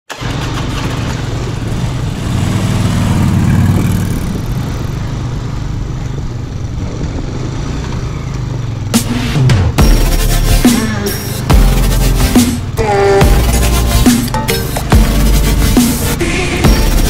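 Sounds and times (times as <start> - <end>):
motorcycle engine running: 0.1 - 9.0
wind and road noise: 0.1 - 16.7.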